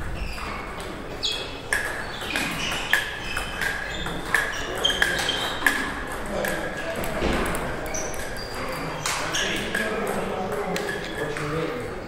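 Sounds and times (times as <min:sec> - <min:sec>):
table tennis ball clicking: 0:01.6 - 0:11.6.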